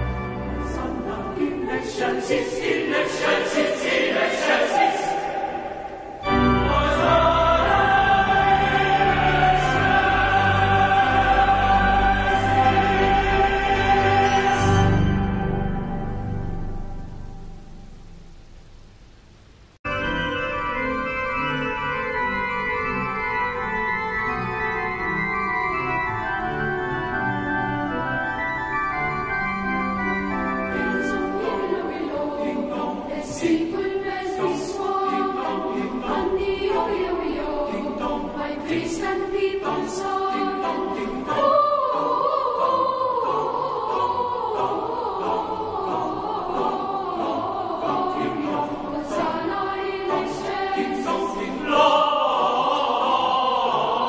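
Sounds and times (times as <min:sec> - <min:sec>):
pipe organ playing: 0:00.0 - 0:16.9, 0:19.9 - 0:33.2
choir singing a carol: 0:00.0 - 0:17.6, 0:20.0 - 0:54.0.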